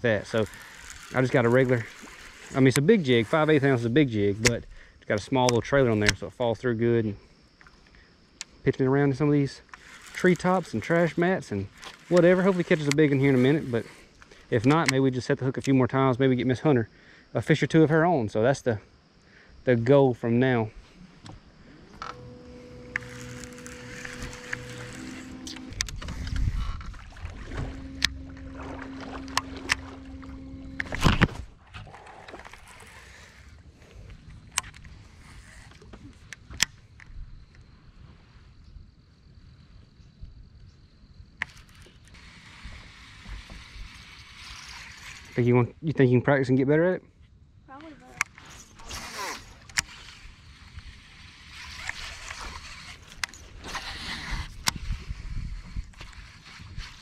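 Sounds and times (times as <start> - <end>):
steady hum: 0.0 - 5.0, 19.8 - 36.6
fishing reel clicks: 0.0 - 6.3, 8.4 - 15.8, 21.9 - 31.3, 32.3 - 36.8, 41.4 - 45.7, 48.1 - 57.0.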